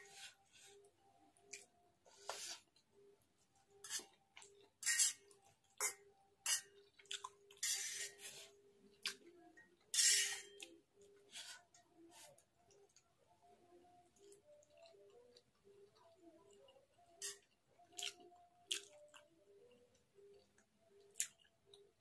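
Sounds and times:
slurping and chewing noodles: 6.5 - 9.2, 17.2 - 19.2.

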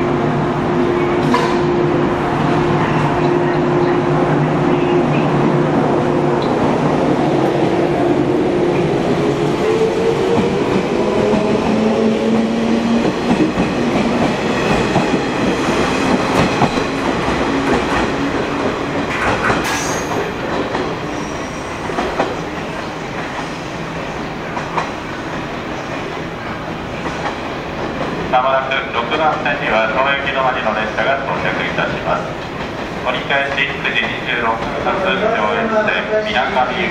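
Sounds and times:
train wheels clacking over rail joints: 13.3 - 21.0.

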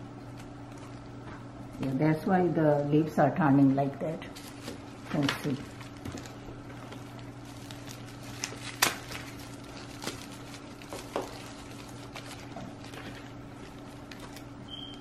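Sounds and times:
bark potting mix crumbling: 4.3 - 15.0
hands handling root ball: 4.4 - 14.6.

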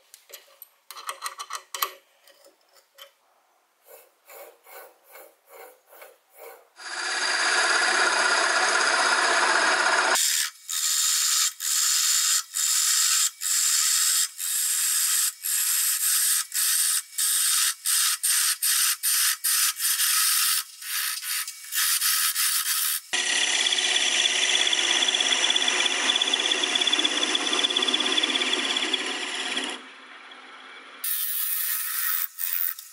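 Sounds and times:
lathe tool cutting wood: 6.8 - 10.2, 23.2 - 31.2.

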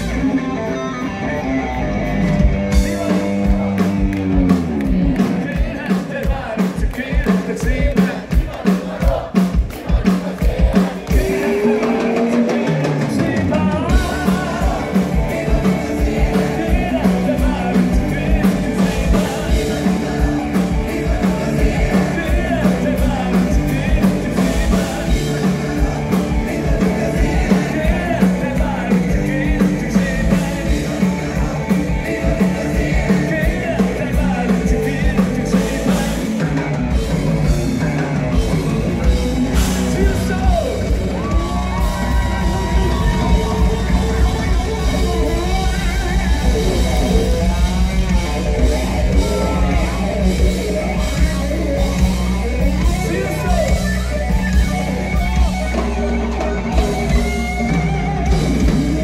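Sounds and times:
drum kit: 0.0 - 59.0
guitar: 0.0 - 59.0
person singing: 9.9 - 54.1.

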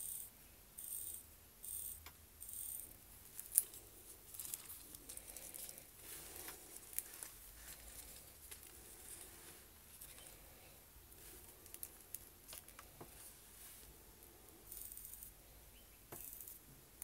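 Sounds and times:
watch winding ratchet clicks: 0.0 - 3.8, 14.7 - 15.4.

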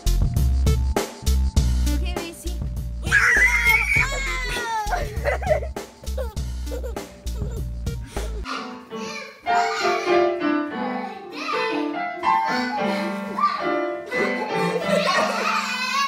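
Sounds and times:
bass-heavy music track: 0.0 - 8.4.

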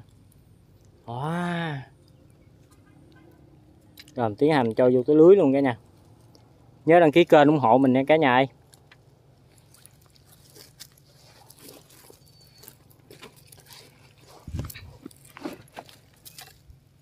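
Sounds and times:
rustling and clicking of wire traps: 2.0 - 4.9, 8.6 - 17.0.

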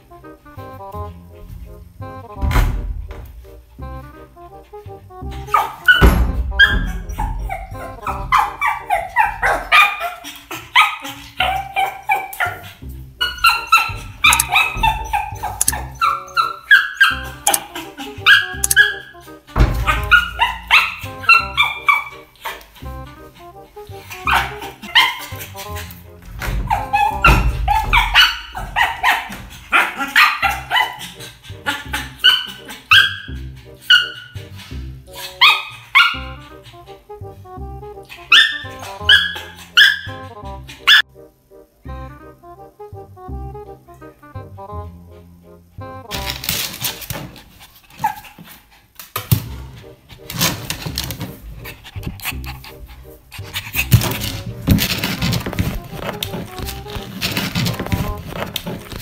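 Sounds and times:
background music: 0.0 - 48.3, 49.0 - 59.0
dog barking high: 5.4 - 19.1, 19.8 - 22.6, 24.2 - 25.9, 26.6 - 34.4, 35.2 - 36.6, 38.2 - 41.1
dog barking sharply: 38.3 - 40.2.

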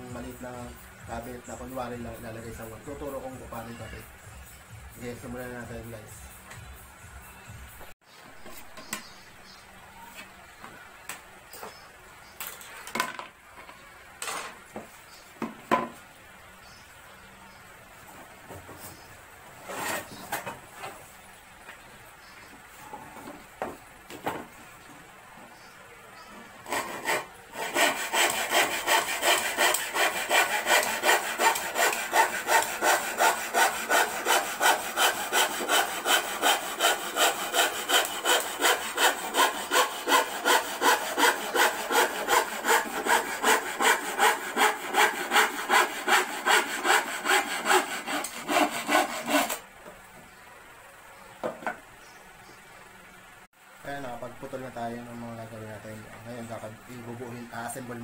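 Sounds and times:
hand saw cutting plywood: 19.6 - 20.5, 26.6 - 49.6.

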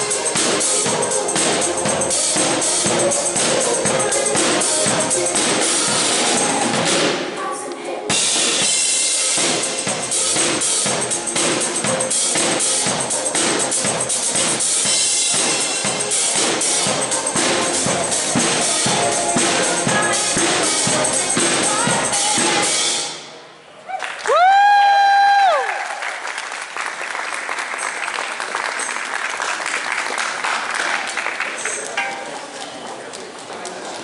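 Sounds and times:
drum kit beat: 0.0 - 7.3, 8.1 - 23.2
live pop song through pa: 0.0 - 23.1.

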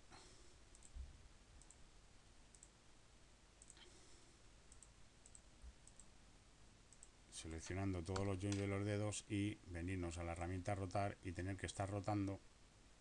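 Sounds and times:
computer mouse clicks: 0.7 - 1.0, 1.6 - 1.8, 2.5 - 2.8, 3.6 - 3.9, 4.7 - 6.1, 6.9 - 7.2.

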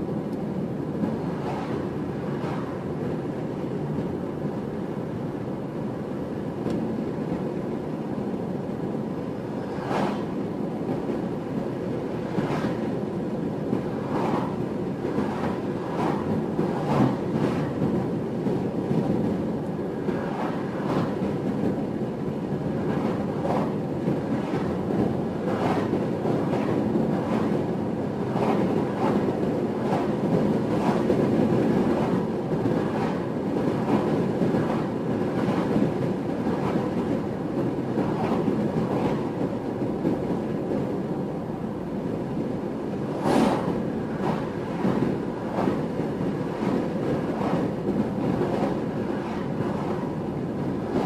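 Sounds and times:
passing car whoosh: 1.2 - 3.0, 9.5 - 10.4, 13.9 - 17.8, 24.4 - 27.5, 43.1 - 45.7.

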